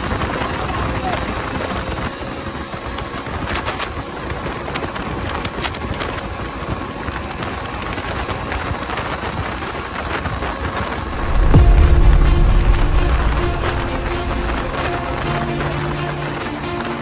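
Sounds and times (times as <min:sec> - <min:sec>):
music: 0:00.0 - 0:02.1, 0:11.0 - 0:17.0
motorcycle road noise: 0:00.0 - 0:17.0
rushing wind: 0:00.0 - 0:17.0
crackles: 0:02.8 - 0:17.0.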